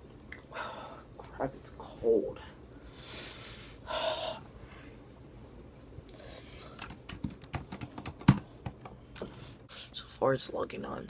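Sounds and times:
typing on keyboard: 6.8s - 8.8s.

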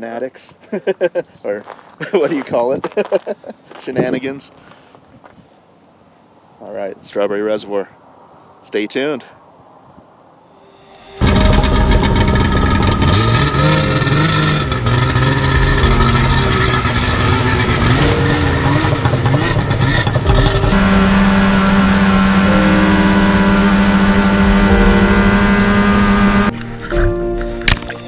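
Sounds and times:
snowmobile engine revving: 11.2s - 26.5s.

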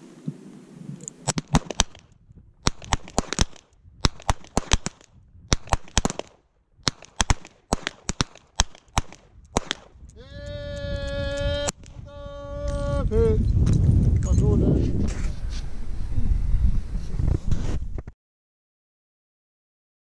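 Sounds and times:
revolver gunshots: 1.3s - 10.0s.

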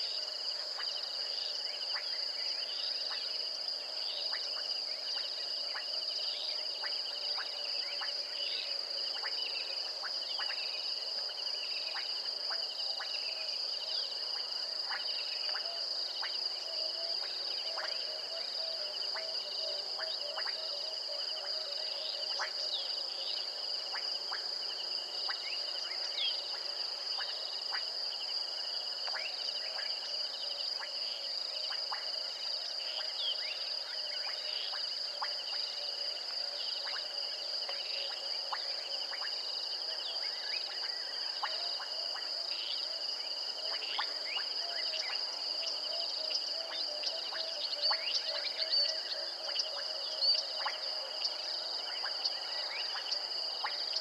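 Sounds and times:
insects trilling: 0.0s - 54.0s
short cricket chirps: 0.0s - 54.0s.

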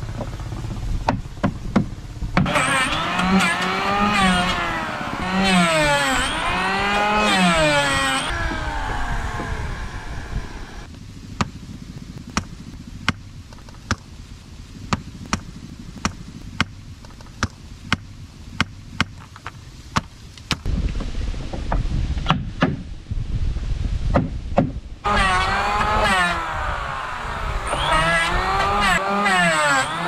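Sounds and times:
low rumble: 0.0s - 11.3s
electric planer whining: 2.4s - 10.9s, 25.0s - 30.0s.

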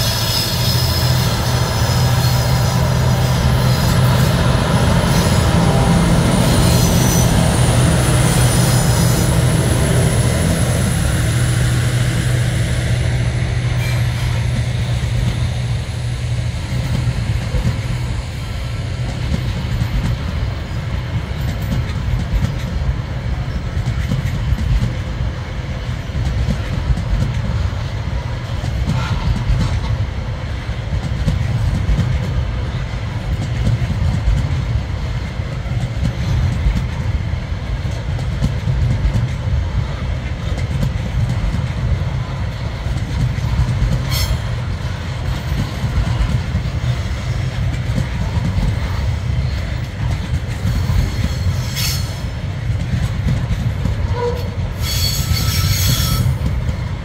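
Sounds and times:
high wheel squeaks: 0.0s - 11.0s, 54.1s - 56.5s
train wheels rumbling on track: 0.0s - 57.0s.

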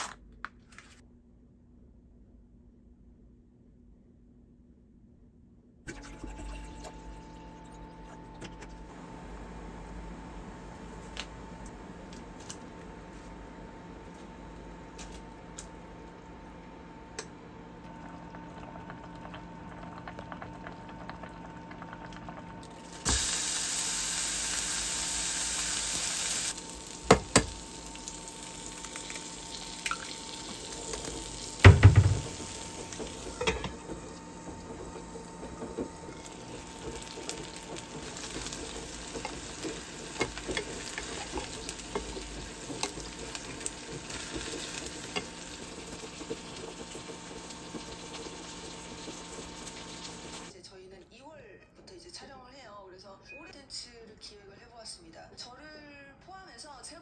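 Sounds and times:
egg sizzling in frying pan: 18.4s - 50.5s.

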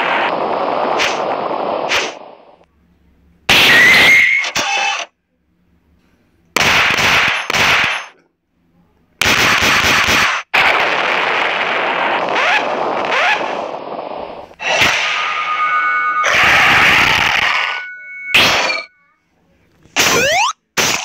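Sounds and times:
harsh noise bursts: 14.6s - 18.9s, 20.0s - 21.0s.

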